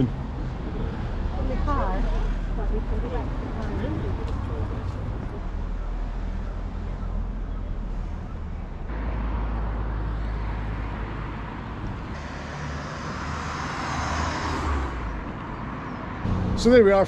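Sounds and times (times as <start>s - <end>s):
road traffic rumble: 0.0s - 17.0s
car passing close by: 9.1s - 17.0s.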